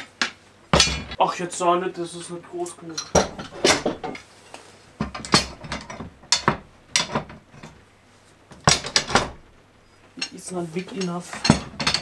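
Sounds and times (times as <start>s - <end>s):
metal clamps clanking and rattling: 0.7s - 1.2s, 2.9s - 4.2s, 5.0s - 7.8s, 8.6s - 9.4s, 10.2s - 12.0s.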